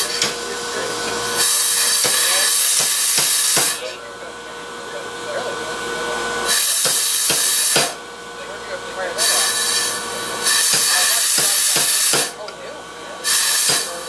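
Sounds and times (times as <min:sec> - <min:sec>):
loud hissing: 0:00.0 - 0:03.9, 0:09.2 - 0:12.4, 0:13.2 - 0:14.0
power hammer blows on metal: 0:00.0 - 0:03.9, 0:06.5 - 0:08.0, 0:09.2 - 0:12.4, 0:13.2 - 0:14.0.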